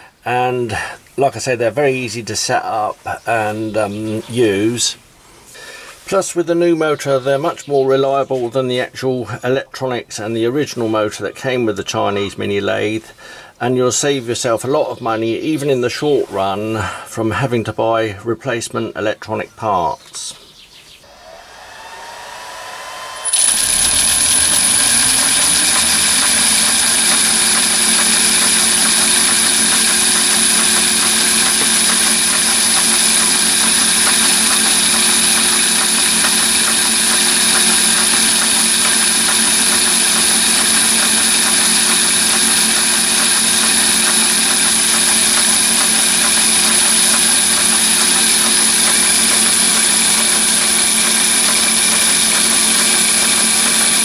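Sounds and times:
electric motor whining: 21.1s - 54.0s.

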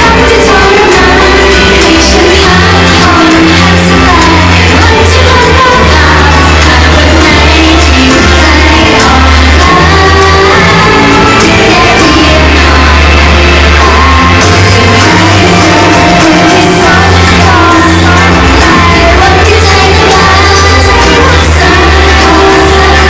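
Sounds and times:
fans cheering: 0.0s - 23.0s
female vocal singing: 0.0s - 23.0s
pop song over loudspeakers: 0.0s - 23.0s.

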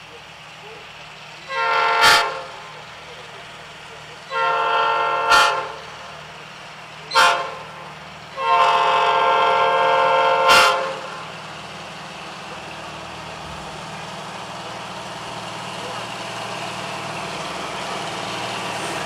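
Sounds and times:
locomotive engine running: 0.0s - 19.0s
locomotive air horn blasts: 1.5s - 2.6s, 4.3s - 5.8s, 7.1s - 7.8s, 8.4s - 11.2s.

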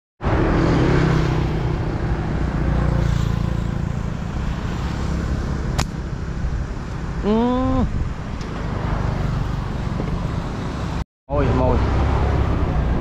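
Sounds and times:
vehicle engine rumbling: 0.2s - 13.0s
sharp click: 5.8s - 6.0s.

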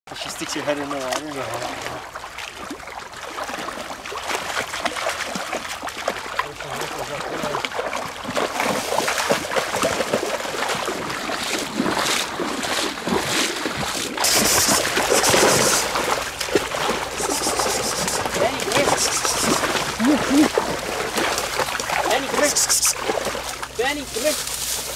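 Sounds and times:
wading splashes in creek: 0.1s - 24.9s.

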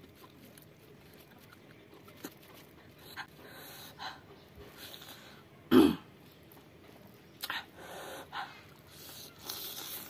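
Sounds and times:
soft mouth noises: 7.4s - 10.0s.

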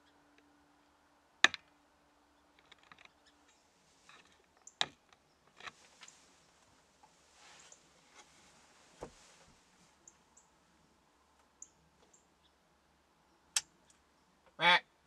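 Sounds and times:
light rustling: 5.5s - 10.4s.

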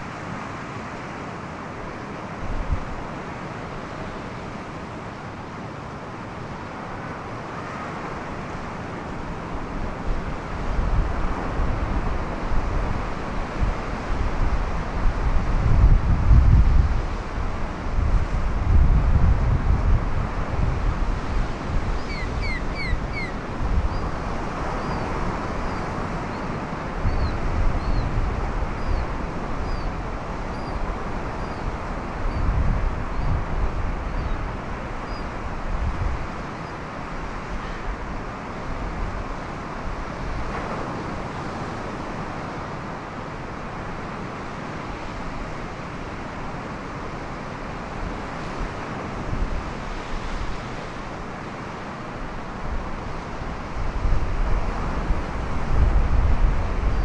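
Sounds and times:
wind buffeting microphone: 9.5s - 36.5s, 52.5s - 57.0s
bird chirping: 22.0s - 23.3s
ocean surf breaking on rocks: 33.7s - 56.9s.

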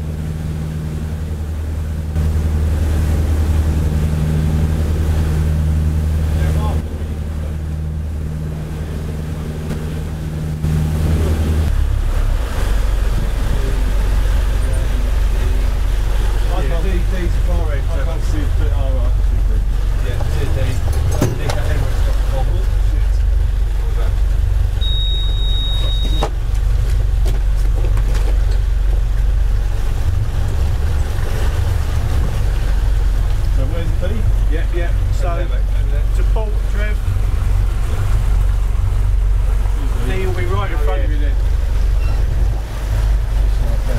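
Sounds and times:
motorboat engine running: 0.0s - 43.9s
water rushing along hull: 0.0s - 43.9s
short high electronic beep: 24.8s - 26.2s.

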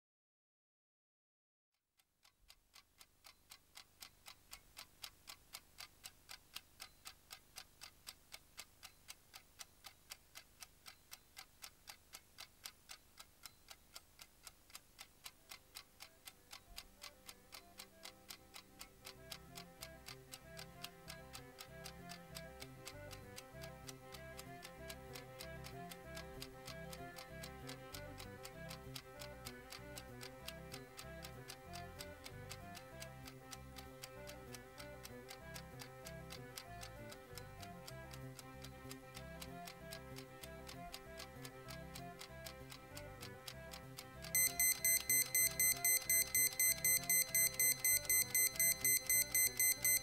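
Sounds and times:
clock ticking: 2.2s - 50.0s
soft music: 15.4s - 50.0s.

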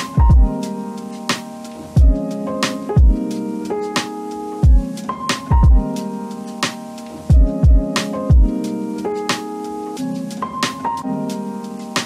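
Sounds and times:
kick drum and snare beat: 0.0s - 0.6s, 2.0s - 2.2s, 3.0s - 3.2s, 4.6s - 5.9s, 6.6s - 8.6s
held keyboard chords: 0.0s - 12.0s.

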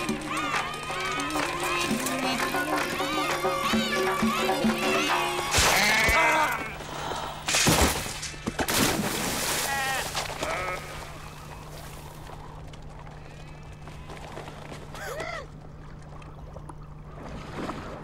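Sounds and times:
sheep bleating: 0.0s - 6.8s, 9.6s - 11.5s.

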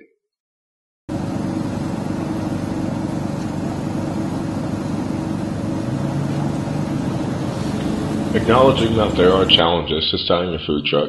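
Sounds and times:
truck engine idling: 1.1s - 9.7s.

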